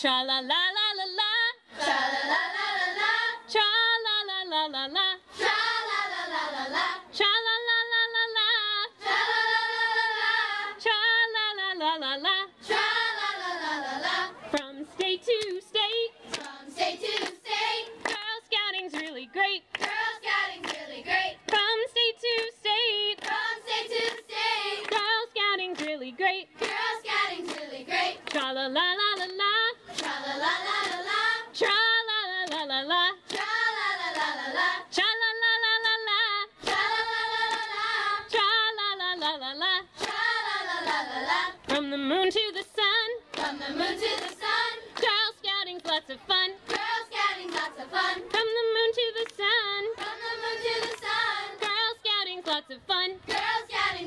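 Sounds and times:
girls choir singing: 1.0s - 54.0s
hand claps: 16.2s - 25.1s, 25.7s - 26.0s, 26.6s - 28.5s, 29.1s - 30.2s, 30.8s - 31.2s, 32.4s - 34.4s, 36.6s - 37.8s, 40.0s - 41.9s, 42.5s - 48.6s, 49.2s - 53.6s.

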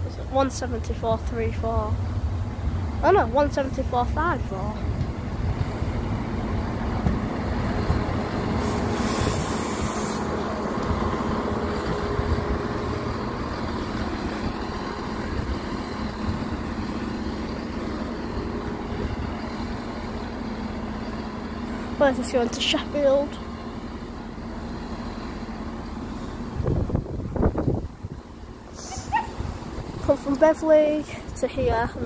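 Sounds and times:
diesel engines idling: 0.0s - 32.0s
air hiss: 8.5s - 10.4s.

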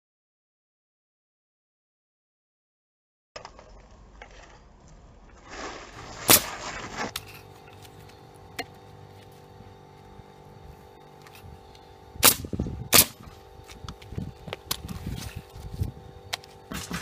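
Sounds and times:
low hum: 3.4s - 17.0s
nail gun shot: 6.2s - 6.6s, 12.2s - 13.2s.

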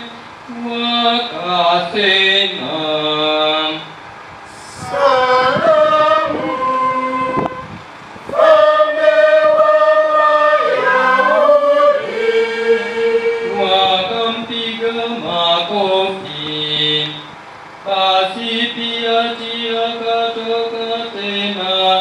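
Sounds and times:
voices chanting: 4.5s - 17.3s.

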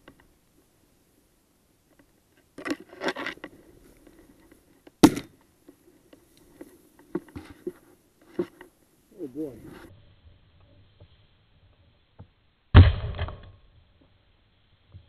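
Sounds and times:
shotgun shot: 5.0s - 5.3s, 12.7s - 13.5s.

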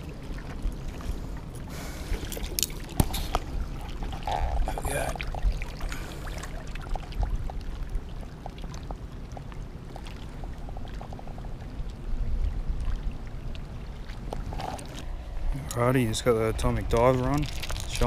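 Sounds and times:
waves lapping on rocks: 0.0s - 12.1s, 12.7s - 18.0s
wind rumble on microphone: 0.0s - 18.0s
water ticks: 2.2s - 12.0s, 12.7s - 15.8s, 16.5s - 18.0s.

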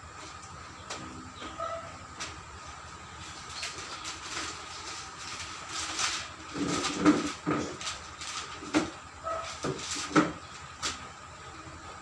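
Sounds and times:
faint steady hum: 0.0s - 12.0s
knocks and scrapes of handling: 3.6s - 11.0s.

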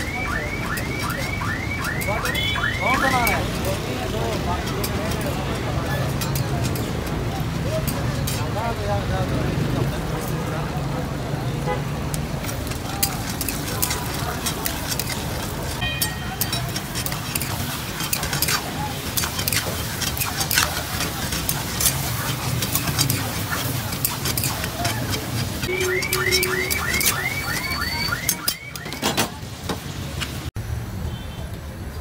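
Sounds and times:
chicken frying in a wok: 0.0s - 32.0s
metal spatula scraping pan: 0.8s - 8.6s, 12.4s - 29.3s
high chirps: 25.6s - 28.9s.

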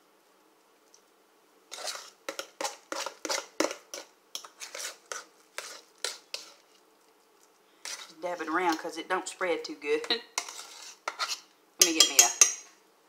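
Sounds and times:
metal utensils scraping a dish: 1.7s - 6.6s, 7.8s - 8.8s, 10.0s - 12.6s.

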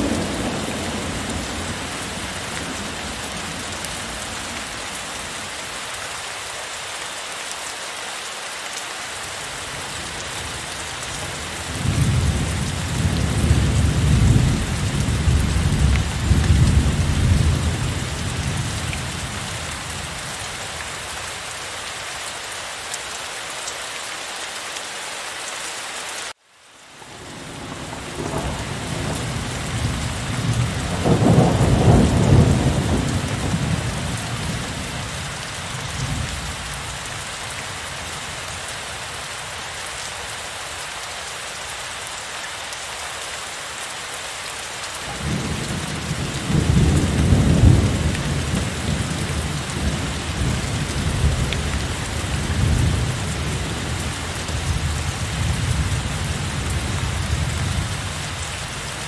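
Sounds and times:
low rolls of thunder: 0.0s - 3.7s, 27.1s - 35.0s, 45.1s - 51.8s
heavy rain: 0.0s - 59.0s.

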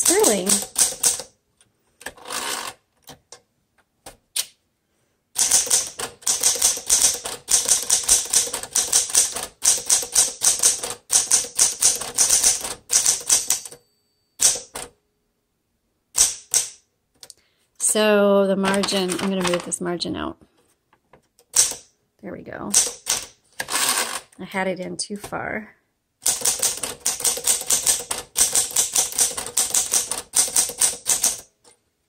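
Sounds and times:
typewriter carriage return: 0.0s - 1.3s, 5.4s - 13.8s, 14.4s - 14.9s, 18.6s - 19.8s, 21.4s - 21.8s, 22.7s - 24.3s, 26.2s - 31.5s
typewriter keystrikes: 0.0s - 1.3s, 5.4s - 13.8s, 14.4s - 14.9s, 16.2s - 16.8s, 18.6s - 19.8s, 21.4s - 21.9s, 22.7s - 24.2s, 26.2s - 31.5s.

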